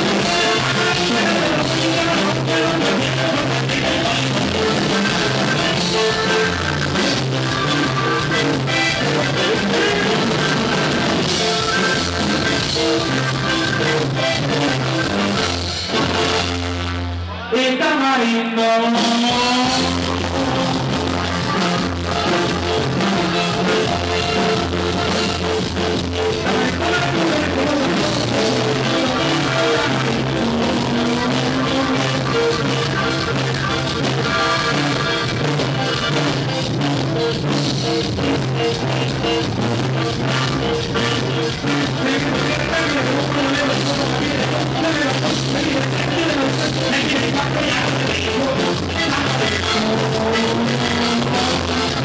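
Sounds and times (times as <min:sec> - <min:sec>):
man singing into a microphone: 0:00.0 - 0:16.5, 0:17.2 - 0:25.4, 0:26.2 - 0:36.6, 0:38.2 - 0:52.0
button accordion melody: 0:00.0 - 0:17.4, 0:19.2 - 0:52.0
strummed guitar: 0:00.0 - 0:17.6, 0:18.4 - 0:52.0.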